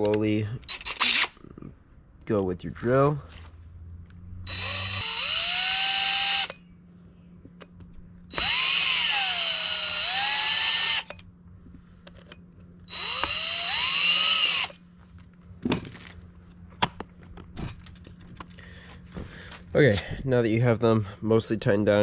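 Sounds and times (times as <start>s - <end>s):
cordless drill whining: 0.7s - 1.4s, 4.4s - 6.6s, 8.3s - 11.2s, 12.8s - 14.8s.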